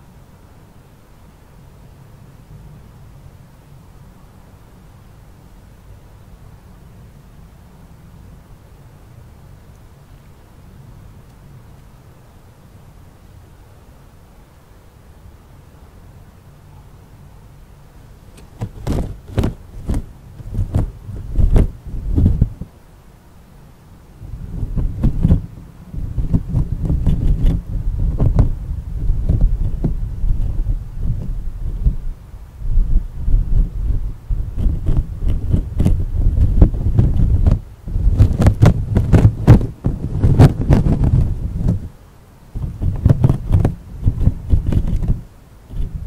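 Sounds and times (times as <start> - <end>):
heavy thumps and knocks: 18.4 - 22.7, 26.2 - 32.0, 34.3 - 41.9, 42.6 - 46.0
wind buffeting microphone: 18.4 - 22.7, 24.2 - 46.0.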